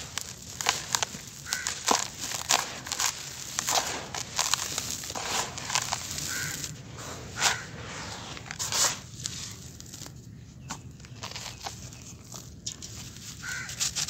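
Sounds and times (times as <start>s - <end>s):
grit trickling: 0.0s - 10.3s
sand crunching in hand: 0.0s - 14.0s.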